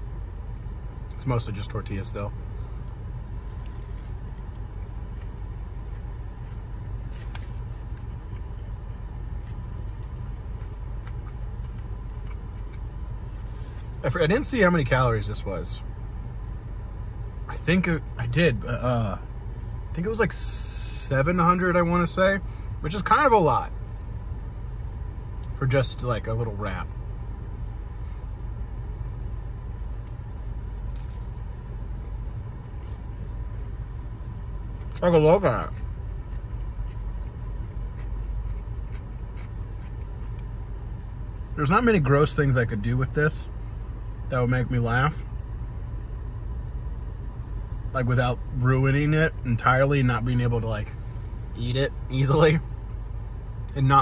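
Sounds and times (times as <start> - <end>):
low rumble inside car cabin: 0.0 - 54.0
wrap being chewed: 3.3 - 14.0, 35.7 - 40.5.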